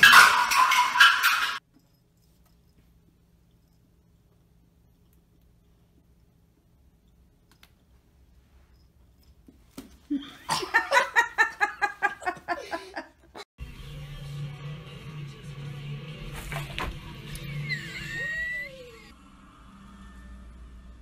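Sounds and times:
person laughing hard: 10.1 - 13.4.

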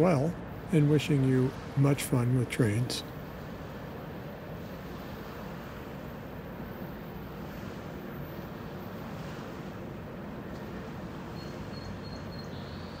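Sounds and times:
small waves: 0.0 - 13.0
wind: 0.0 - 13.0.

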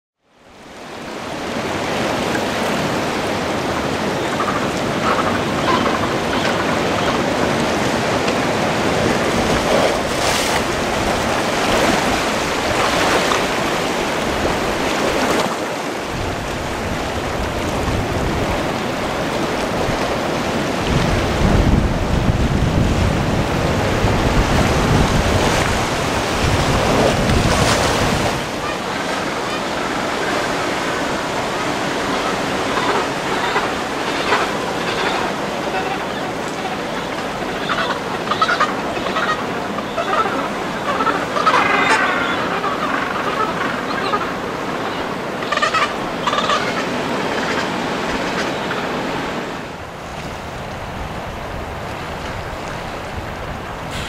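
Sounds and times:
sea surf washing ashore: 0.3 - 54.0
wind buffeting microphone: 1.7 - 29.0.

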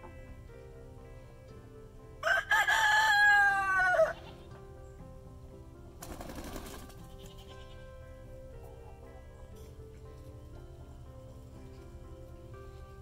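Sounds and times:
rooster crowing: 2.2 - 4.3.

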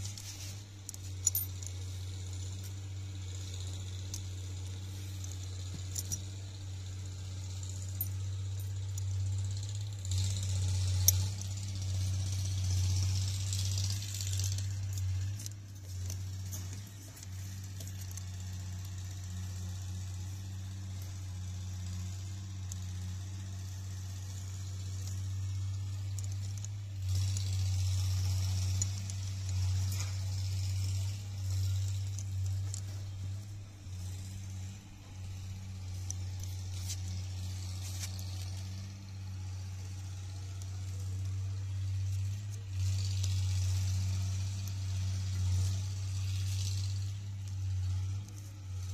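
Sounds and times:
metal parts clinking and rattling: 0.0 - 38.8
steady low hum: 0.0 - 48.9.

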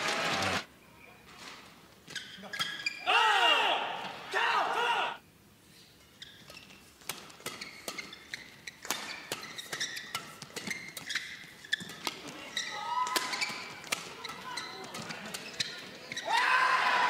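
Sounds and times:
shoes squeaking on court: 0.4 - 3.1, 5.7 - 16.3
rackets hitting shuttlecock: 7.0 - 16.2.

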